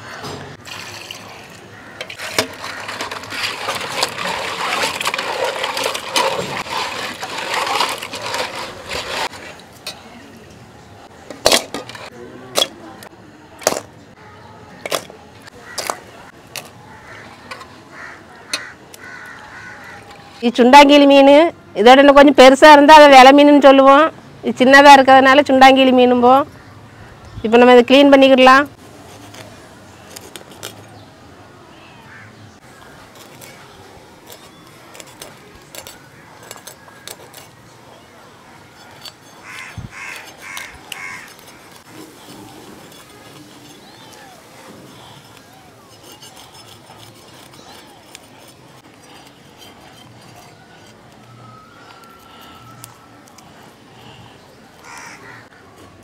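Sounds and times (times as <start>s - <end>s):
fish scales scraped on blade: 38.7s - 54.2s.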